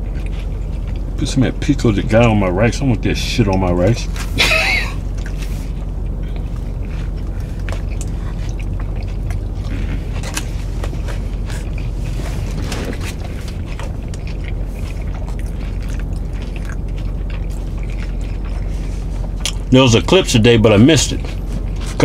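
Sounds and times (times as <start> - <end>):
chewing and biting: 0.0 - 22.0
low car cabin hum: 0.0 - 22.0.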